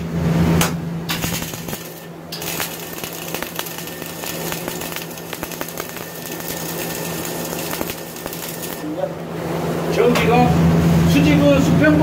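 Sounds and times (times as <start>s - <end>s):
welding arc crackling and popping: 1.1s - 9.0s.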